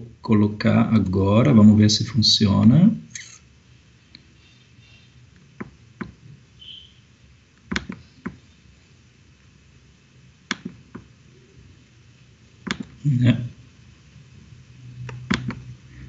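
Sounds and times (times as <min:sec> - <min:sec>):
computer clicks and taps: 0:05.6 - 0:06.2, 0:07.6 - 0:08.4, 0:10.5 - 0:11.1, 0:12.6 - 0:13.0, 0:15.1 - 0:15.6.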